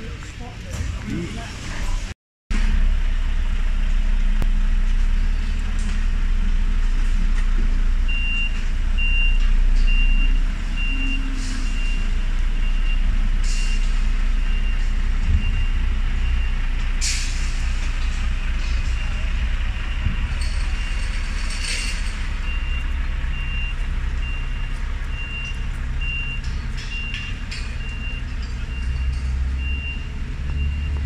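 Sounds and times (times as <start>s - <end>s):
diesel engine running: 0.0s - 31.0s
reversing alarm beeping: 8.1s - 16.8s, 18.5s - 31.0s
air brake hisses: 17.0s - 17.8s.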